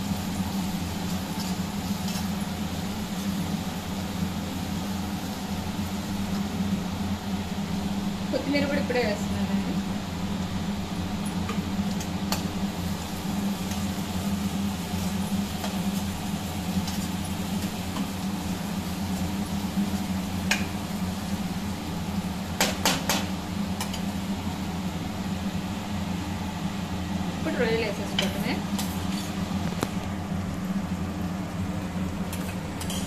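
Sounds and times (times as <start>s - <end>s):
steady low hum: 0.0s - 33.0s
spoon stirring and scraping pan: 32.4s - 33.0s.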